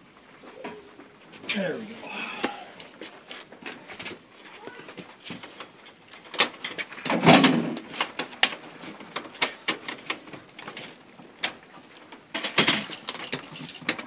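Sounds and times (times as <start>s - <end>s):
scraping rustle: 12.8s - 14.0s.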